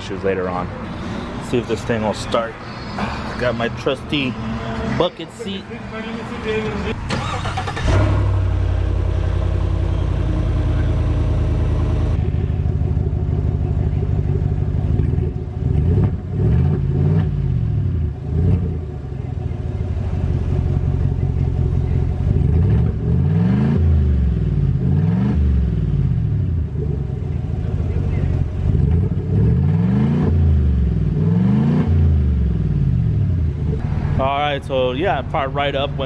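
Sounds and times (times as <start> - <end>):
pickup engine starting and revving: 6.9 - 13.5, 14.8 - 34.0.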